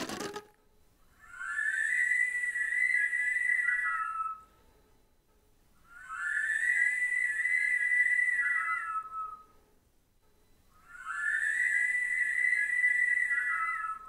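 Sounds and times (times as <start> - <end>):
flute with electronics: 1.1 - 4.6, 5.9 - 9.6, 10.8 - 14.0.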